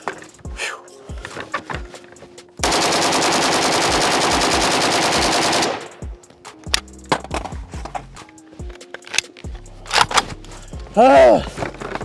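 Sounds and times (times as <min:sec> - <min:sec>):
automatic rifle burst: 0:02.7 - 0:06.0.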